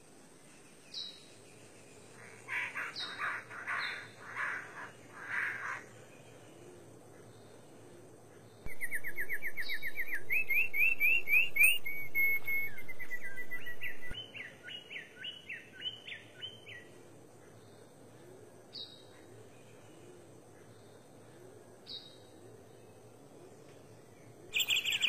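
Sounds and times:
bird singing trills and whistles: 0:08.6 - 0:16.8, 0:24.5 - 0:25.0.

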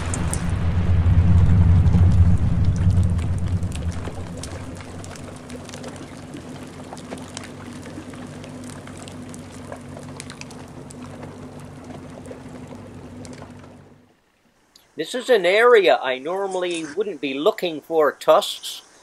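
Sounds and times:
sand pouring down: 0:00.0 - 0:12.0
boat motor humming: 0:00.0 - 0:14.2
falling stones ticking: 0:02.0 - 0:12.0.

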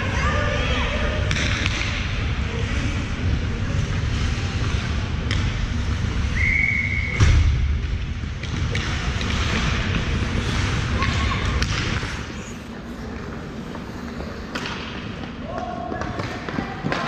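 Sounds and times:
low rink rumble: 0:00.0 - 0:17.0
whistle blast: 0:06.3 - 0:07.2
loud thump: 0:07.2 - 0:07.9
hockey sticks and puck knocking: 0:13.7 - 0:17.0.

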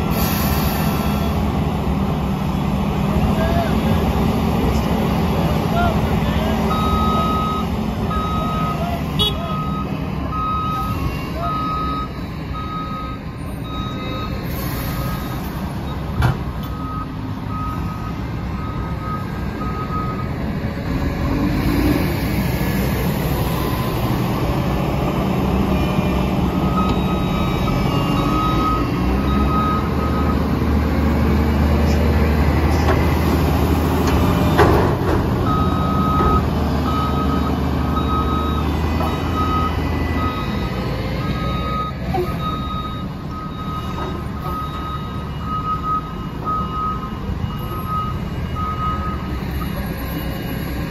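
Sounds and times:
diesel engines droning: 0:00.0 - 0:50.9
back-up alarm beeping: 0:06.7 - 0:14.4, 0:35.5 - 0:49.8.

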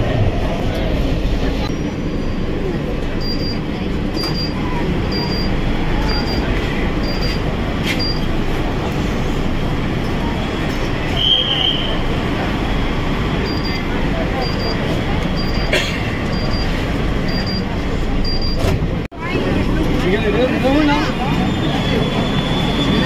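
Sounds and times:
train carriage running noise: 0:00.0 - 0:23.0
door warning beeps: 0:03.2 - 0:07.4, 0:08.0 - 0:08.3, 0:13.4 - 0:13.8, 0:14.4 - 0:15.7, 0:16.3 - 0:18.7.

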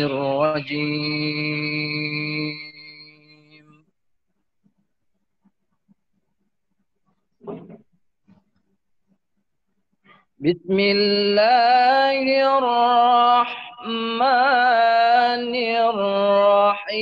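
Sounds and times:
man reciting melodically: 0:00.0 - 0:03.8, 0:10.4 - 0:17.0.

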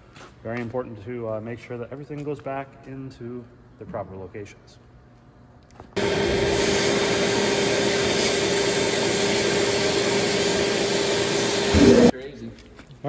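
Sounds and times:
compressed air blasting hiss: 0:06.0 - 0:12.1.

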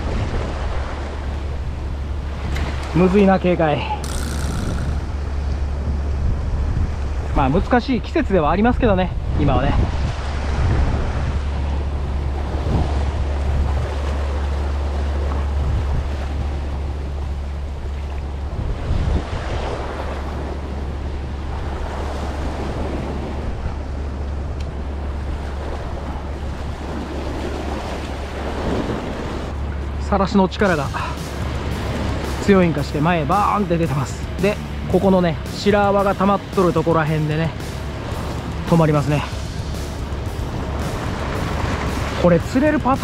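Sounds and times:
wind buffeting microphone: 0:03.7 - 0:43.0
sea washing against rocks: 0:25.0 - 0:43.0.

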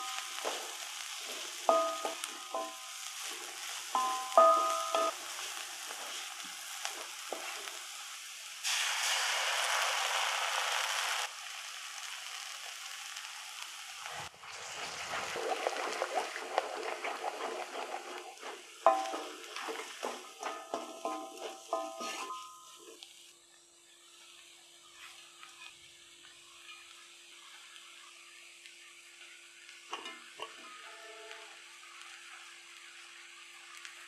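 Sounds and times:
wooden spatula scraping a wok: 0:00.0 - 0:07.8, 0:15.2 - 0:23.0
eggs sizzling in hot pan: 0:00.0 - 0:23.3, 0:24.3 - 0:34.0
vegetables sizzling in a wok: 0:00.0 - 0:34.0.

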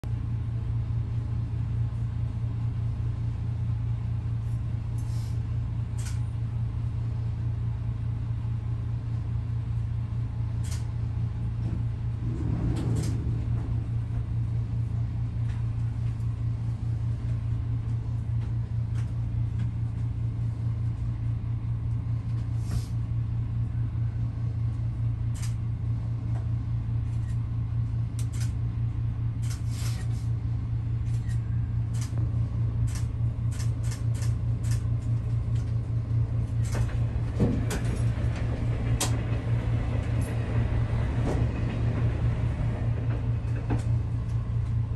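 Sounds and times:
diesel railcar engine hum: 0:00.0 - 0:44.9
sharp clicks of train over points: 0:06.0 - 0:06.3, 0:10.6 - 0:10.9, 0:25.3 - 0:25.6, 0:28.2 - 0:28.6, 0:29.4 - 0:30.2, 0:31.0 - 0:32.2, 0:32.8 - 0:35.8.

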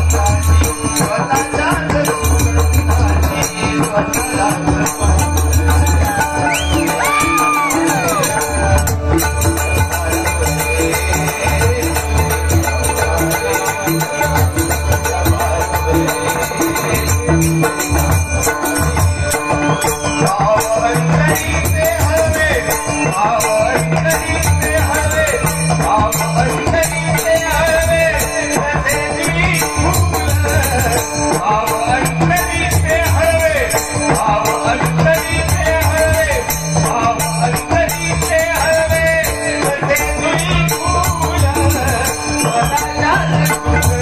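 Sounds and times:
person singing: 0:00.0 - 0:18.1
jingling hand cymbals: 0:00.0 - 0:44.0
tabla: 0:00.0 - 0:44.0.

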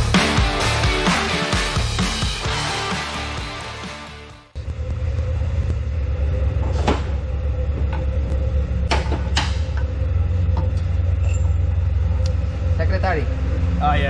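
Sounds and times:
low workshop rumble: 0:04.5 - 0:14.0.

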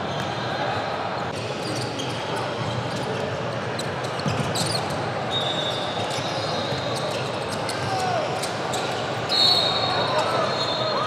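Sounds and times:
sneakers squeaking: 0:00.0 - 0:11.0.

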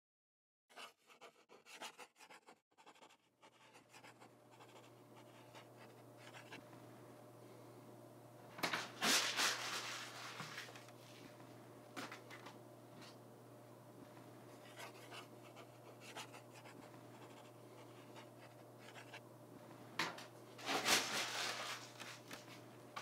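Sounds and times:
pen scratching on paper: 0:00.7 - 0:06.6, 0:14.6 - 0:19.2
paper rustle: 0:08.6 - 0:11.3, 0:20.6 - 0:22.6.

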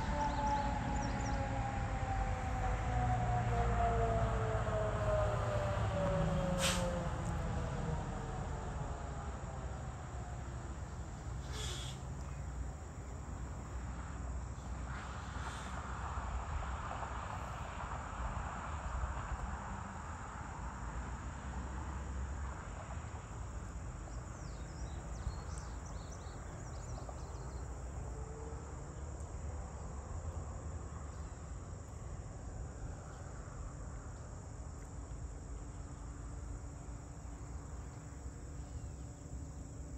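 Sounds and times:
train horn: 0:00.0 - 0:04.4, 0:05.8 - 0:07.2
crickets and insects chirping: 0:00.0 - 0:39.9.

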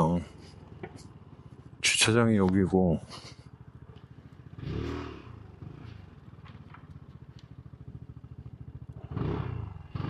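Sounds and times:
scooter engine running: 0:00.0 - 0:10.0.

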